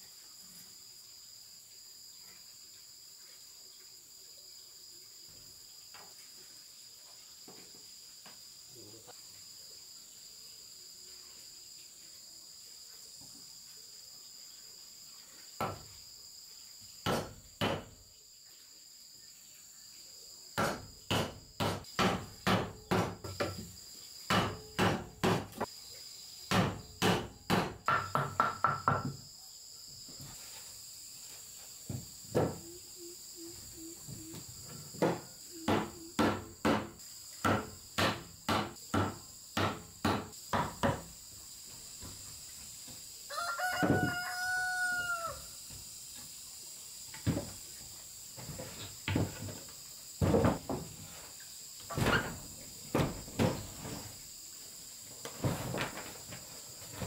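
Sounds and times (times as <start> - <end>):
high-pitched insect drone: 30.8 - 37.4.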